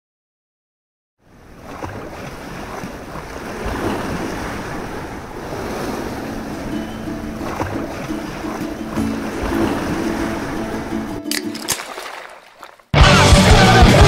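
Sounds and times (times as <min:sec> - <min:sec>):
wind: 0:01.2 - 0:13.0
sea surf: 0:01.2 - 0:14.0.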